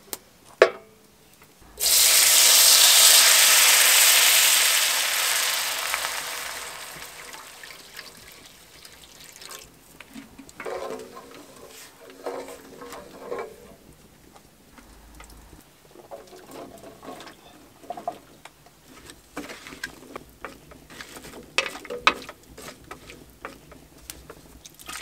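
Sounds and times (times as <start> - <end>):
water pouring into hot butter: 1.8 - 9.8.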